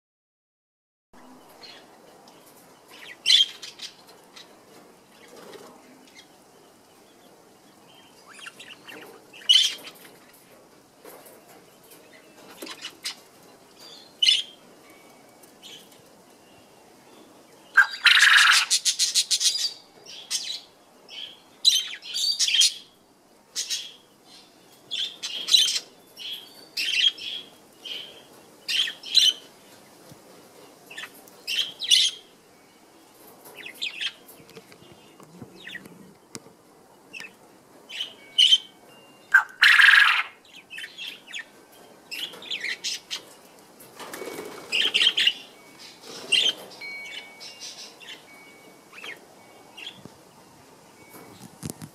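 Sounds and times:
quail pulsing calls: 17.8 - 19.5, 39.3 - 40.4.

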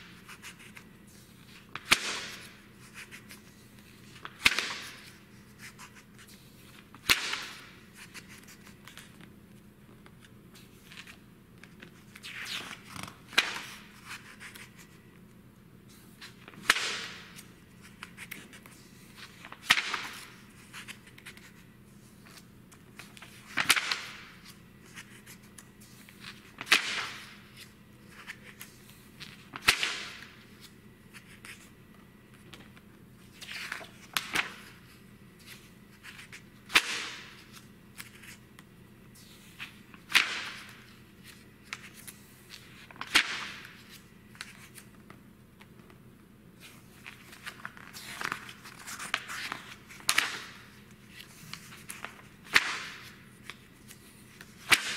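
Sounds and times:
magazine pages turning: 32.5 - 38.4, 46.6 - 54.9.

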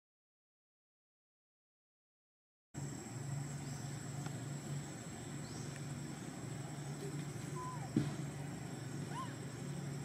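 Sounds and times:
low background hum: 2.8 - 10.0
squeaky chirps: 6.9 - 8.0, 9.0 - 9.8.

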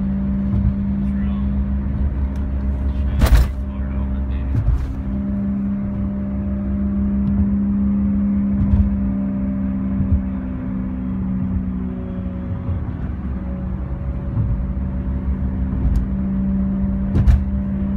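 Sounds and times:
loud low drone: 0.0 - 17.9
tyre and road rumble: 0.0 - 17.9.

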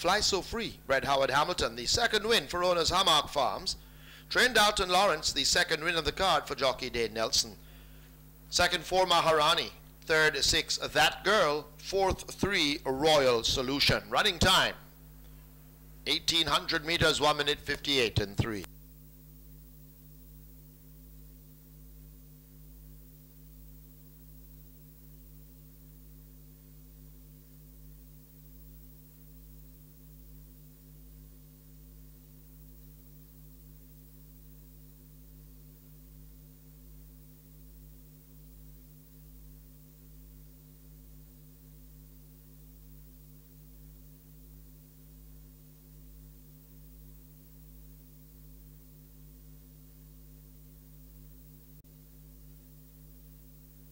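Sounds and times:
electrical hum: 0.0 - 53.9.

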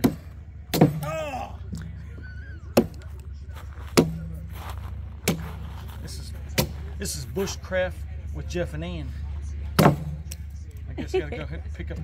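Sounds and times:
hatchet chopping wood: 0.0 - 1.9, 2.8 - 3.1, 3.9 - 4.4, 5.2 - 5.5, 6.6 - 6.8, 9.8 - 10.4.

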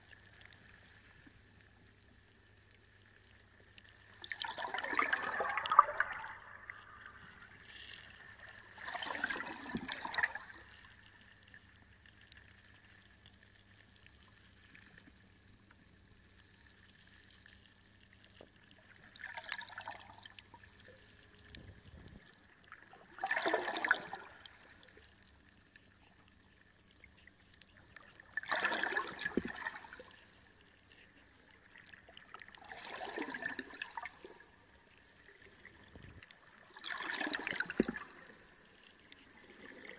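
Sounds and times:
faint steady hum: 0.0 - 39.9
water splashing and gurgling: 3.2 - 12.6, 17.6 - 39.9.

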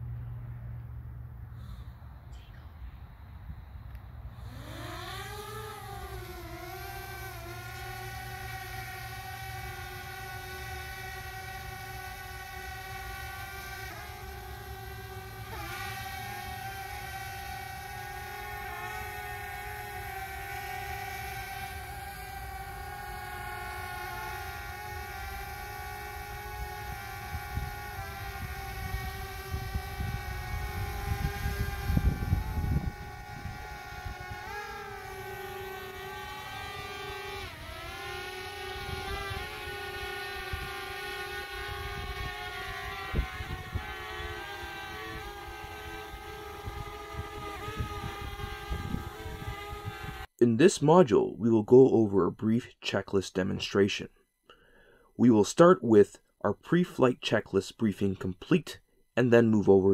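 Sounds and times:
drone propellers whining: 3.7 - 50.4.

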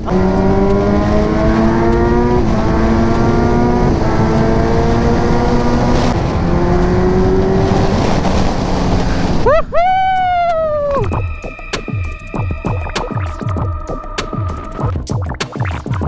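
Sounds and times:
motorcycle engine running hard: 0.0 - 9.4
wind rush: 0.0 - 11.4.

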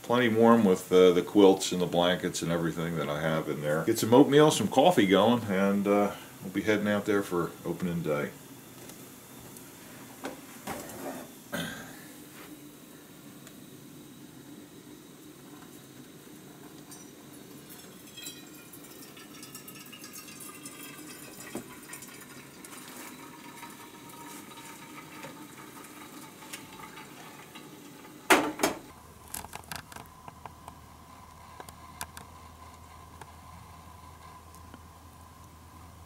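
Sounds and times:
water pouring into mug: 17.5 - 28.2
kitchenware clinks: 17.7 - 21.6.

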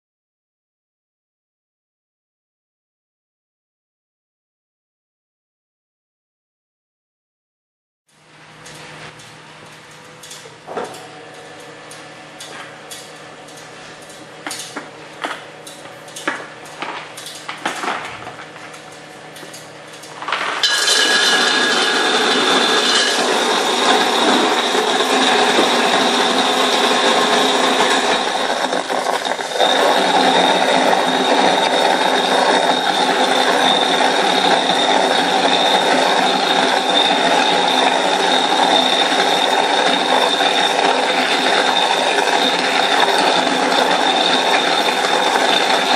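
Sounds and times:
electric motor whirring and whining: 21.0 - 45.9.

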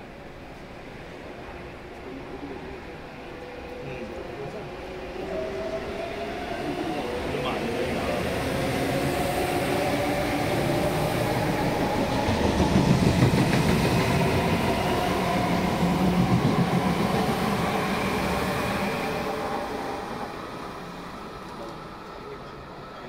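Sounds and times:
train wheel rumble: 6.8 - 19.0.

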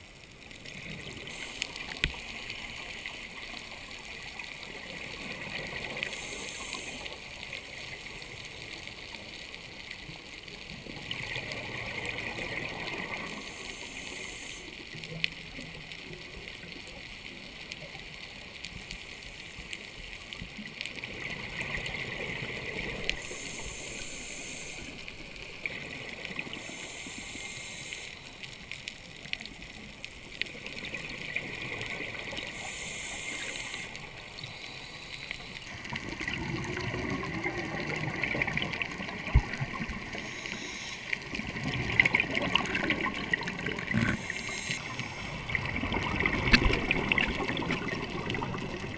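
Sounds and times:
exhaled bubbles gurgling underwater: 0.0 - 48.9
steady watery hiss: 0.0 - 48.9.

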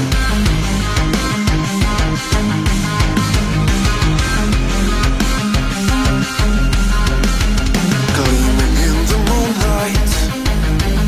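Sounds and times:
rock song with heavy beat: 0.0 - 11.0
wavering melody line: 8.0 - 10.4.

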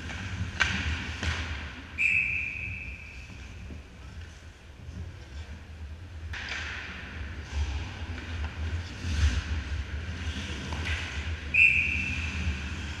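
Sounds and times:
referee's whistle: 2.0 - 3.2, 11.5 - 12.3
skate blades scraping ice: 6.9 - 13.0.

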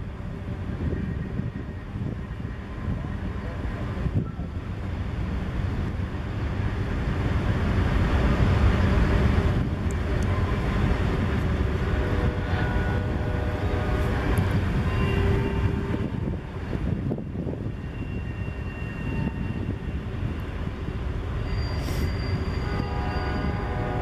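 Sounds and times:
train wheels rumbling on rails: 0.0 - 24.0
faint wheel squealing: 21.4 - 23.8.

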